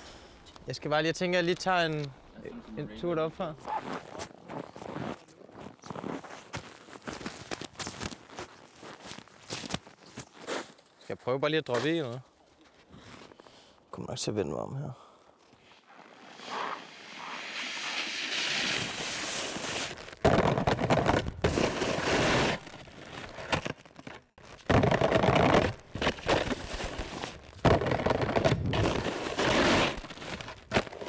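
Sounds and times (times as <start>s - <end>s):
skis crunching on snow: 2.7s - 10.9s, 15.4s - 23.8s, 24.6s - 31.0s
skis scraping metal rail: 16.3s - 19.9s.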